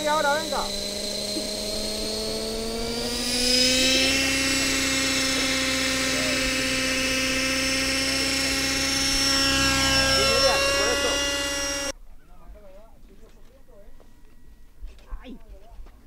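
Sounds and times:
model helicopter engine whine: 0.0s - 12.0s.

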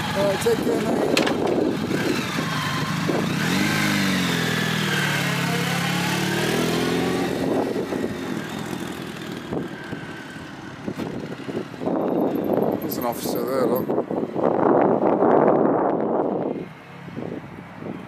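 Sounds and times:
motorcycle engine running: 0.0s - 13.8s.

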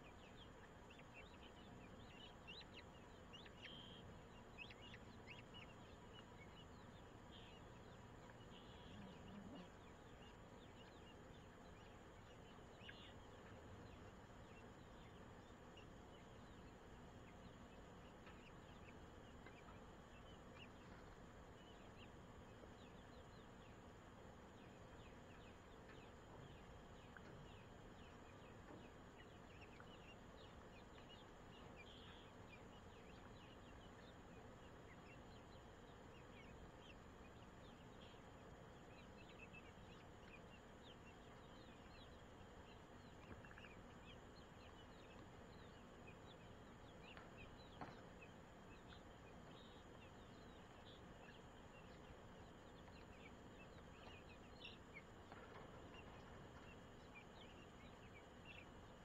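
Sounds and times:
faint steady hiss: 0.0s - 59.0s.

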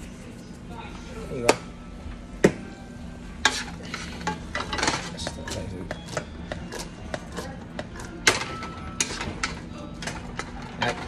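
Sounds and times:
utensil stirring sauce in pot: 5.2s - 8.2s.

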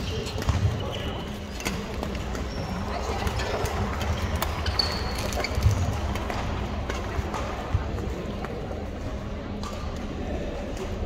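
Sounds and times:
shoe squeak on wooden floor: 0.0s - 5.9s
sports hall din: 0.0s - 11.0s.

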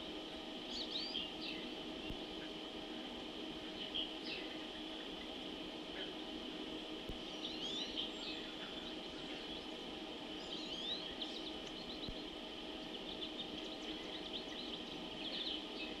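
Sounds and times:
wild birds singing: 0.0s - 16.0s.

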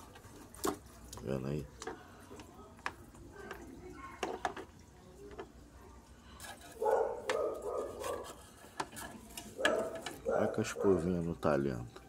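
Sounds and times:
water dripping: 0.0s - 7.8s
brush scrubbing wet parts: 0.0s - 11.9s.

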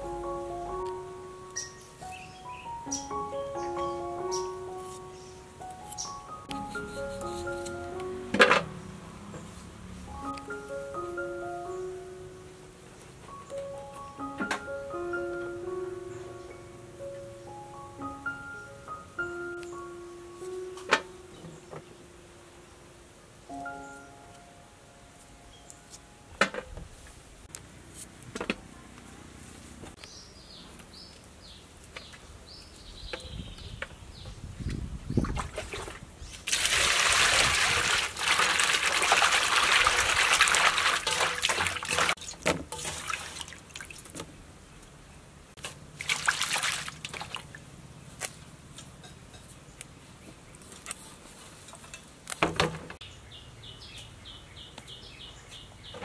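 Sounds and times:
hands splashing leaves in water: 35.2s - 44.1s, 45.6s - 47.6s.

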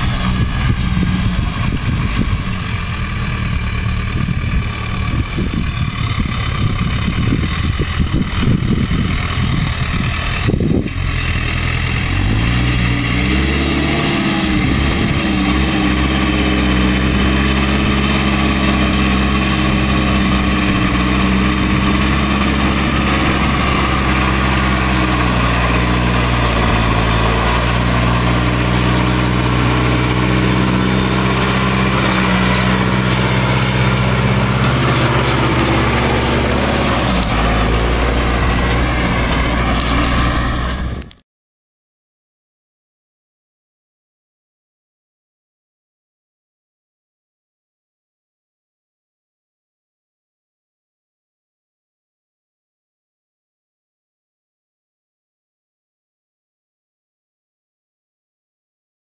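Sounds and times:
wind buffeting microphone: 0.0s - 11.1s
tractor diesel engine running: 0.0s - 41.2s.

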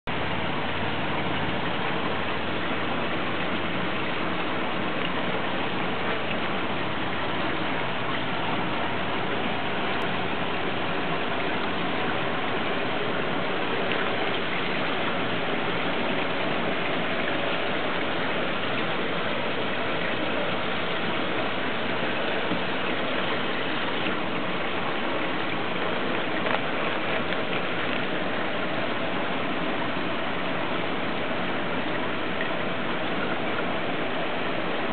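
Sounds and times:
aquarium water rushing and splashing: 0.0s - 34.9s.

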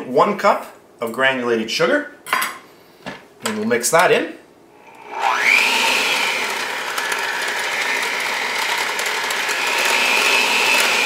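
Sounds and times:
electric hand mixer whine: 4.8s - 11.0s.

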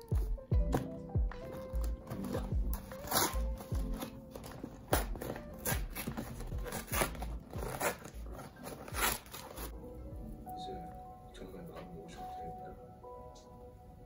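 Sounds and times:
background music with steady beat: 0.0s - 14.0s
paperboard box crinkling: 1.5s - 9.7s.

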